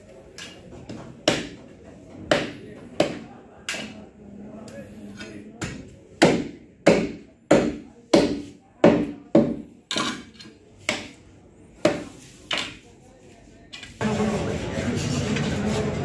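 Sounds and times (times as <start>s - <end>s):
cleaver chopping meat on wood: 1.2s - 1.6s, 2.3s - 3.8s, 5.6s - 9.6s.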